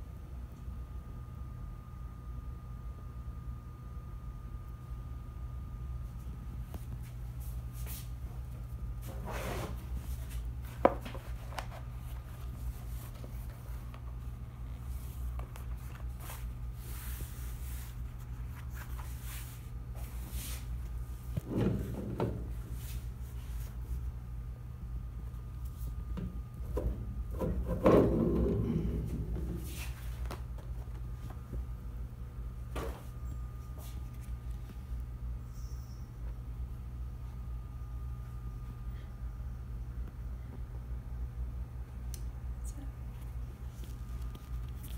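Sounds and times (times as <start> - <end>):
steady low hum: 0.0 - 44.9
press roller rolling over sheet: 27.3 - 30.1.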